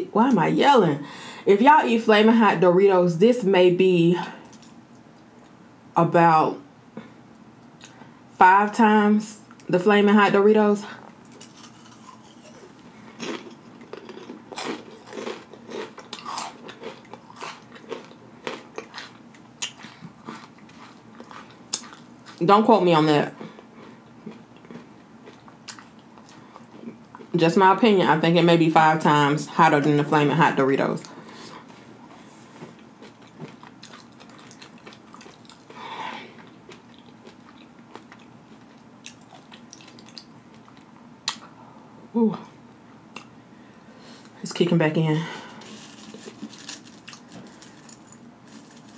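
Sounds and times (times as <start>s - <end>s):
breath: 1.0s - 1.5s, 35.7s - 36.4s, 43.5s - 44.3s
chewing crunchy chips: 11.2s - 22.4s, 23.3s - 27.3s, 32.6s - 41.5s, 45.6s - 48.9s.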